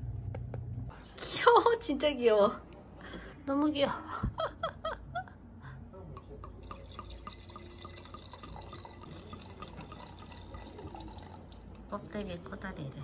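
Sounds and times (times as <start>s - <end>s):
wine pouring into glass: 6.4s - 12.0s.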